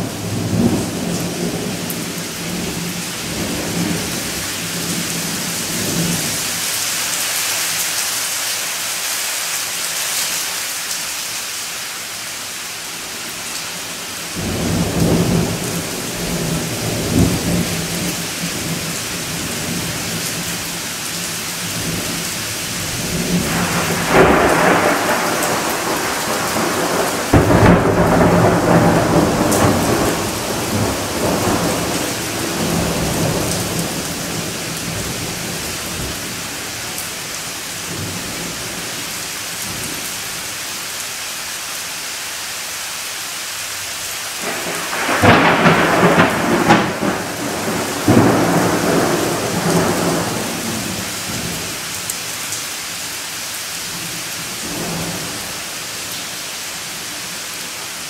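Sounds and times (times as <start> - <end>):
steady rain falling: 0.0 - 58.0
rolling thunder: 22.8 - 36.2, 44.4 - 51.6.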